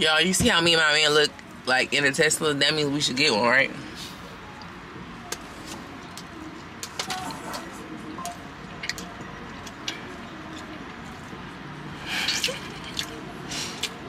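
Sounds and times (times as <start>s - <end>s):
chewing: 12.2s - 14.0s.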